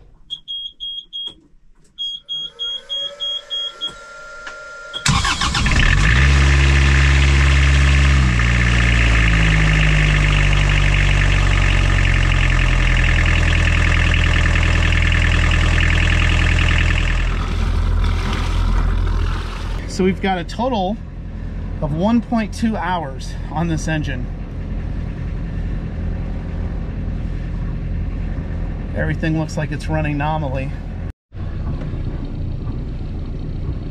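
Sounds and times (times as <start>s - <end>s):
short high beeps: 2.0s - 4.2s
marine diesel engine running: 2.5s - 33.9s.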